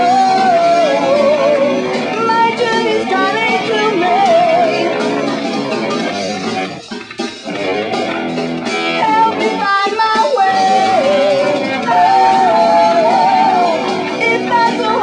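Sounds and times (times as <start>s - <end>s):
wavering guitar melody: 0.0s - 15.0s
progressive metal band music: 5.0s - 9.0s.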